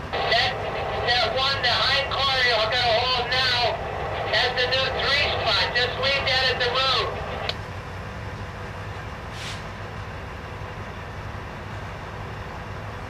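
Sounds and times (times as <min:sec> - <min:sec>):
diesel locomotive idling: 0:00.0 - 0:13.0
brief hiss: 0:09.3 - 0:09.8.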